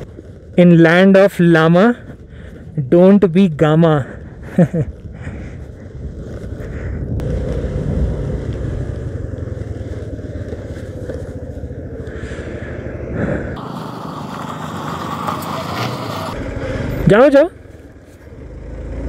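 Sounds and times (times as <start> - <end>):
tyres rolling over gravel: 0.0 - 2.9, 7.2 - 12.8, 13.6 - 16.4
scooter engine running: 7.2 - 19.0.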